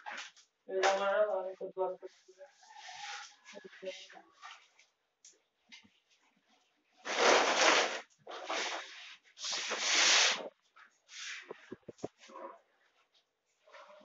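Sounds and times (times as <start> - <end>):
hand scrubbing a countertop: 7.1 - 12.3.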